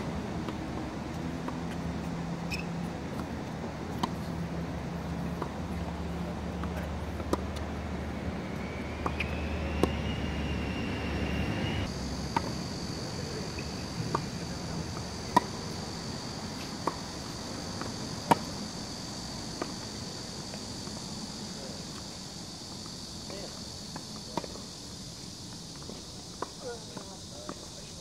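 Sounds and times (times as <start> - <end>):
tennis balls bouncing on court: 0.0 - 10.6, 12.2 - 21.3, 22.7 - 27.7
tennis balls struck by rackets: 0.0 - 10.6, 12.2 - 21.1
high-pitched insect buzz: 7.8 - 14.6.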